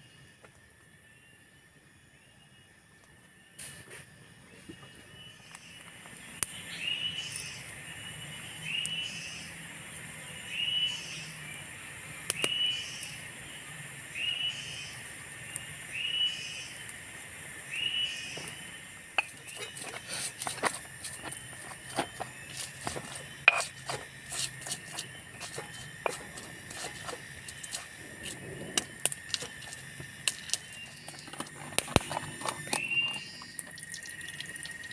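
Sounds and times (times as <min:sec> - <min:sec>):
cicadas droning: 0:00.0 - 0:34.9
blade tapping on stone mortar: 0:19.2 - 0:27.9.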